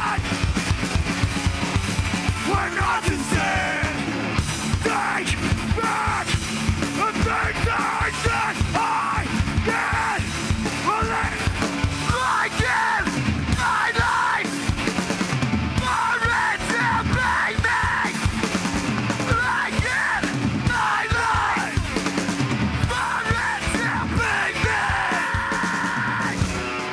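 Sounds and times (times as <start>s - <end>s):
shouted vocals: 0.0s - 0.3s, 2.4s - 4.1s, 4.7s - 14.6s, 15.8s - 18.3s, 19.2s - 22.0s, 22.8s - 26.5s
punk band playing live: 0.0s - 26.9s.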